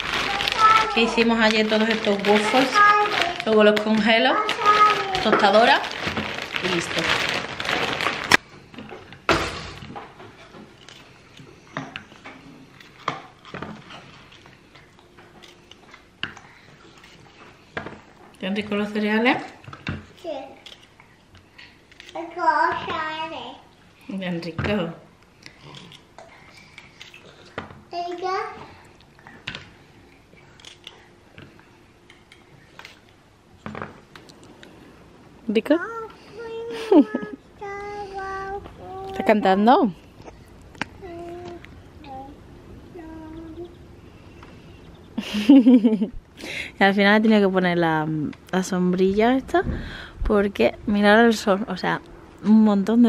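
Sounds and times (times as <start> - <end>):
plastic bag rustling: 0.0 - 8.5.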